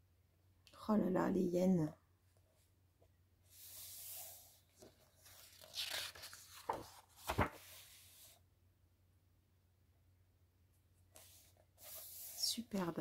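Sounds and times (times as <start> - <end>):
paper page rustling: 3.6 - 8.4, 11.2 - 12.6
paper page flapping: 4.8 - 8.2.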